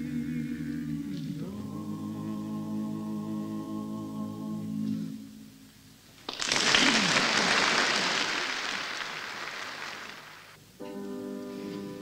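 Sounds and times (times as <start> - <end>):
audience applause: 6.3 - 10.6.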